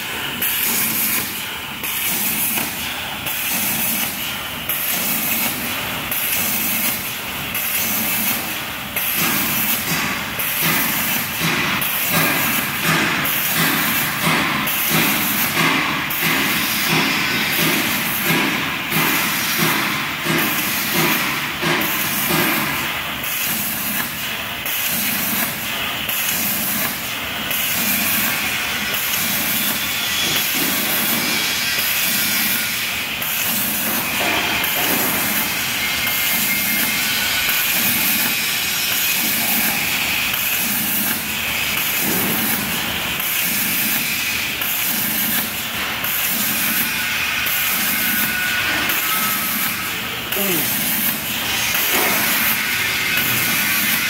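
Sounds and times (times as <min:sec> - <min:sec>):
plasma torch hissing: 0:00.1 - 0:54.0.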